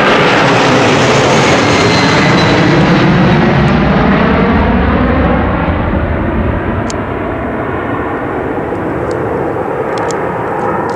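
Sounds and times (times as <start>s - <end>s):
jet engines roaring at takeoff: 0.0s - 10.9s.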